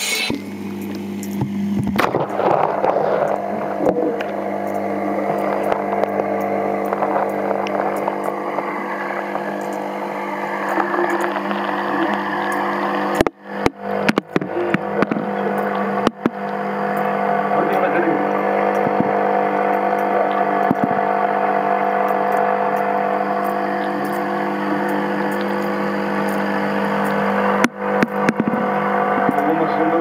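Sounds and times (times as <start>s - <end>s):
aquarium equipment hum: 0.0s - 30.0s.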